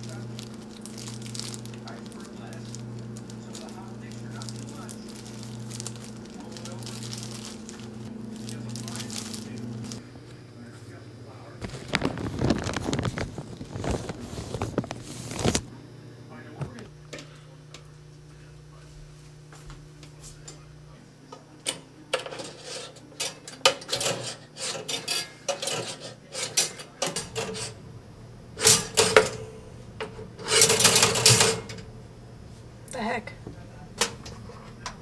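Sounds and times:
toaster scraping and rubbing: 11.6s - 15.7s, 22.1s - 27.9s, 28.6s - 31.8s
toaster clicks: 23.1s - 27.7s.

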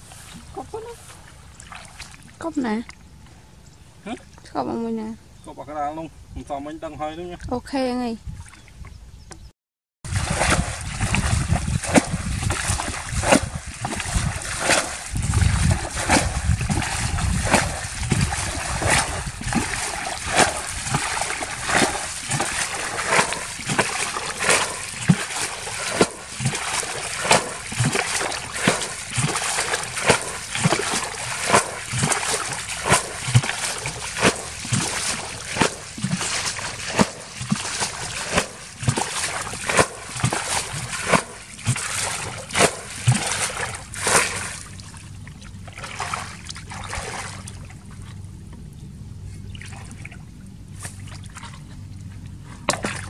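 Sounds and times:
water splashing from bucket: 1.2s - 2.5s, 10.1s - 47.8s, 52.7s - 53.0s.

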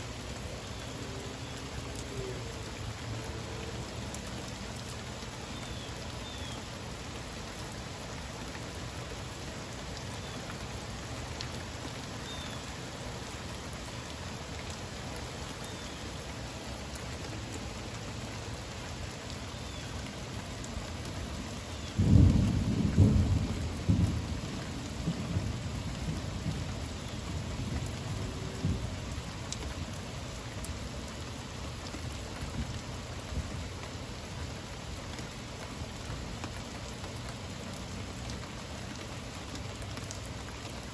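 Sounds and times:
heavy rain falling: 0.0s - 40.9s
thunderclap rumbling: 22.0s - 26.7s.

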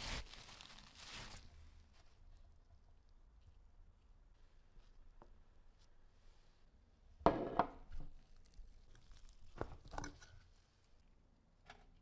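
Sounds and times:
paper towel rustling: 0.0s - 2.1s.

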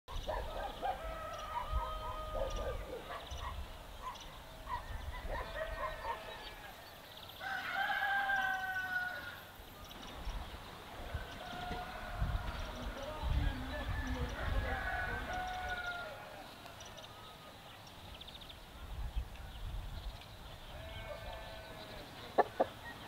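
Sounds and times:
rooster crowing: 0.8s - 3.0s, 5.4s - 9.5s, 11.1s - 17.6s
chickens clucking: 22.0s - 23.0s.

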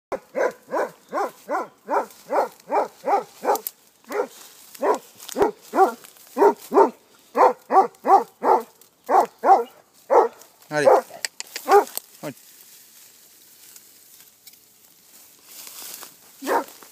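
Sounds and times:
hound barking: 0.1s - 12.0s, 16.4s - 16.9s.

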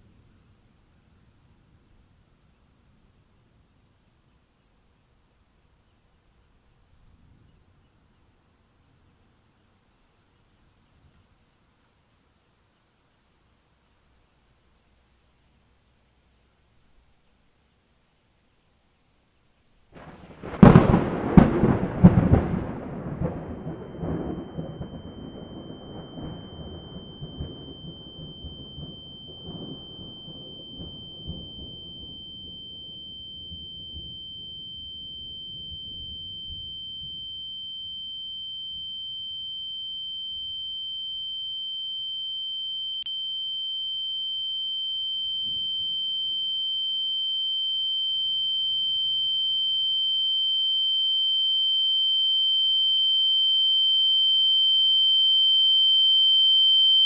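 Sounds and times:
thunder rolling: 20.0s - 32.0s
high-pitched tone: 20.4s - 57.0s.

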